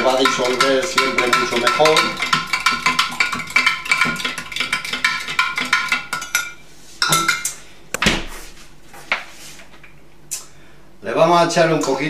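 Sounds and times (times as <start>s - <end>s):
spoon clinking against glass: 5.5s - 7.5s.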